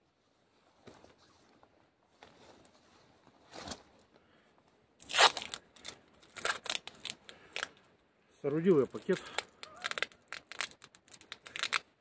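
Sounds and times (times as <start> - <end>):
adhesive tape ripping off roll: 5.0 - 7.7, 9.0 - 11.9.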